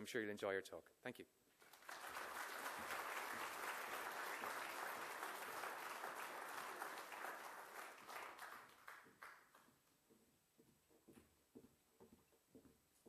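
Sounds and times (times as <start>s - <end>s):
audience applauding: 1.6s - 9.7s.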